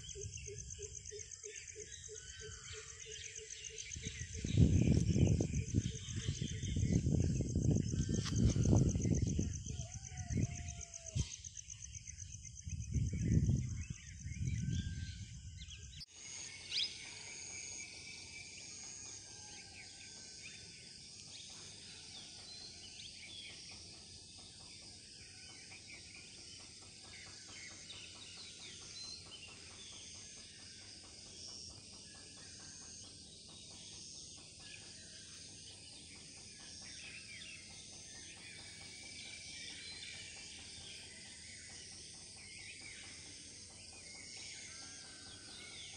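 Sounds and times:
birds chirping: 0.0s - 19.9s
insects chirring: 0.0s - 45.9s.

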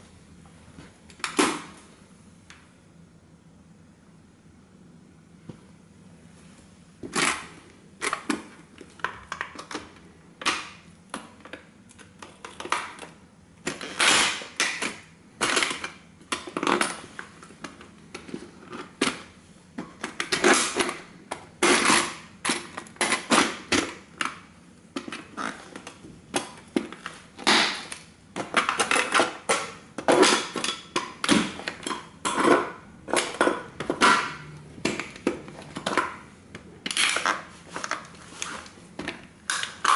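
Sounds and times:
tin toy car being crushed: 13.7s - 16.9s, 21.6s - 24.4s, 27.4s - 35.2s.

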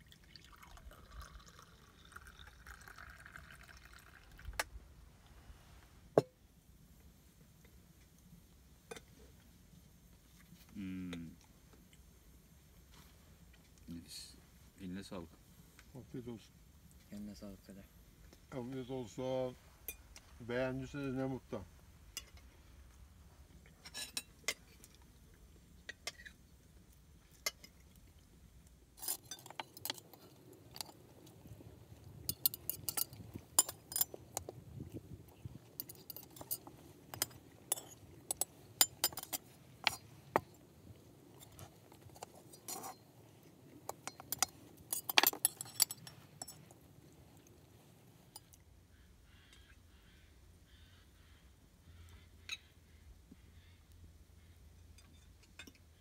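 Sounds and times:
cutlery clinking on dishes: 32.3s - 34.5s, 35.8s - 40.0s, 43.9s - 46.7s.

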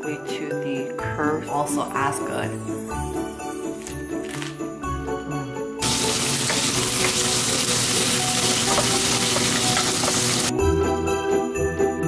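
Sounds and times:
pork sizzling in frying pan: 5.8s - 10.5s.

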